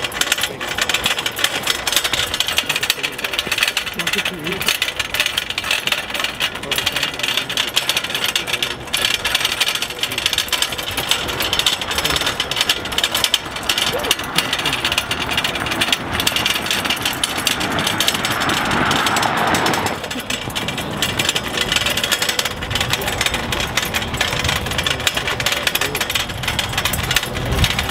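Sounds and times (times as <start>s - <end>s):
cart wheels clattering on gravel: 0.0s - 27.9s
car passing: 15.7s - 20.1s.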